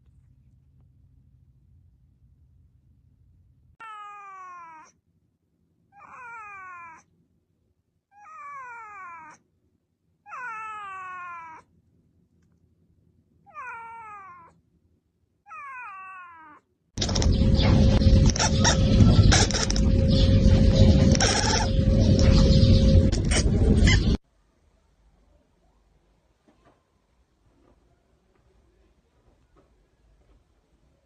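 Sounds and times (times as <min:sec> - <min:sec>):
cat meowing: 0:03.8 - 0:05.0, 0:06.0 - 0:07.1, 0:08.1 - 0:09.4, 0:10.3 - 0:11.7, 0:13.5 - 0:14.6, 0:15.5 - 0:16.6
loud noisy sound: 0:17.0 - 0:24.2.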